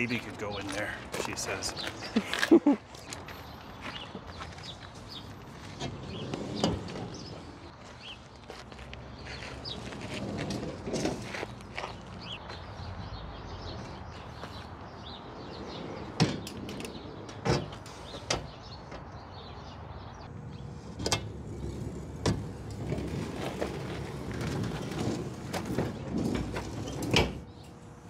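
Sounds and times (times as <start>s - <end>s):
steel door rumbling on rollers: 20.3s - 28.0s.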